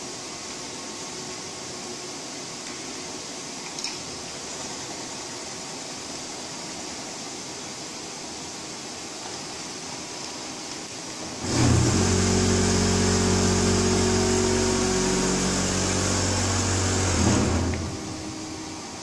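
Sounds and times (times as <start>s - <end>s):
auger motor humming: 11.4s - 19.0s.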